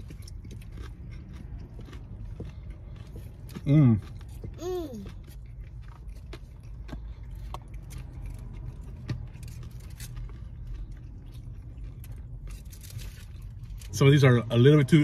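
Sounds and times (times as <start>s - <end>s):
crunchy chewing: 0.0s - 13.9s.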